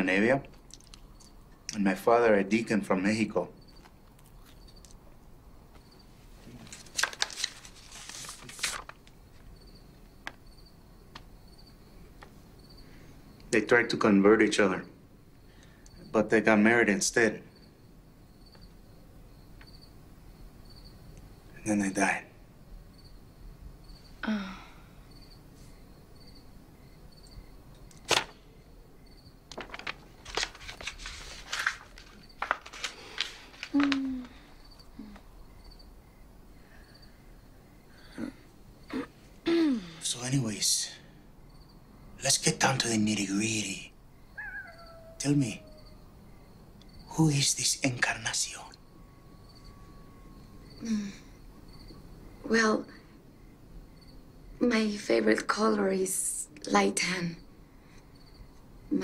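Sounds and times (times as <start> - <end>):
crickets chirping: 0.0 - 59.0
rustles and crunches: 5.8 - 9.6, 27.9 - 28.5, 29.5 - 34.5
sharp crack: 27.9 - 28.5.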